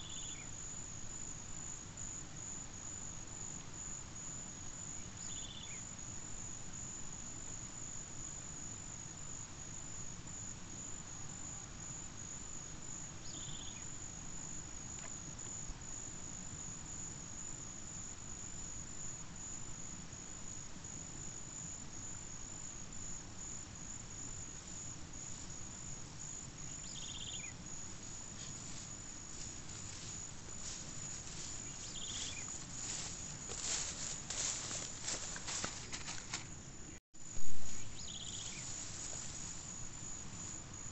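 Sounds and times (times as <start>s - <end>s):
insect chirps: 0.0s - 40.9s
insects trilling: 0.0s - 40.9s
footsteps through tall grass: 28.0s - 36.6s, 37.4s - 40.5s.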